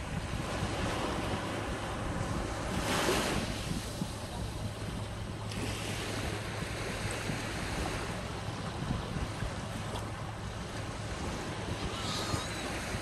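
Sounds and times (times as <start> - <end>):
small waves washing over sand: 0.0 - 13.0
wind rumble on microphone: 0.0 - 13.0.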